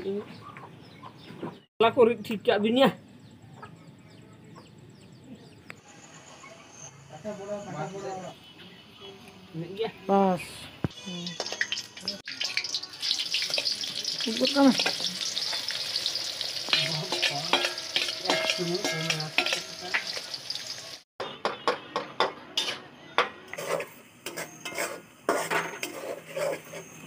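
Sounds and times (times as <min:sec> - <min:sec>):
onions sizzling in hot oil: 0:10.9 - 0:21.0
spatula scraping pan: 0:14.8 - 0:20.2, 0:23.5 - 0:27.0
spoon scraping steel bowl: 0:16.7 - 0:20.0, 0:23.5 - 0:27.0.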